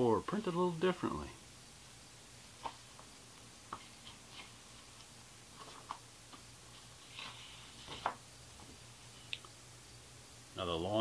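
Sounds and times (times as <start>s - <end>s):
faint low hum: 0.0s - 11.0s
paper rustling: 3.7s - 8.2s.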